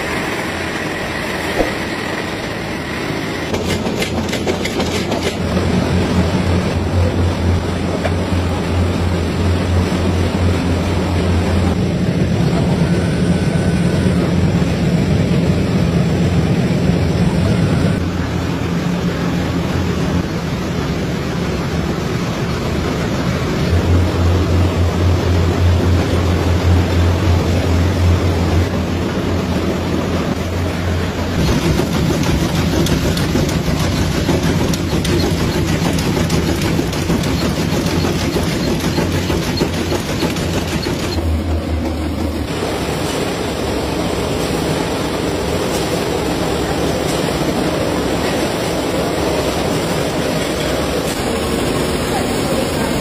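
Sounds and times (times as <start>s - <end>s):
machinery clattering: 3.0s - 8.8s, 30.7s - 44.6s.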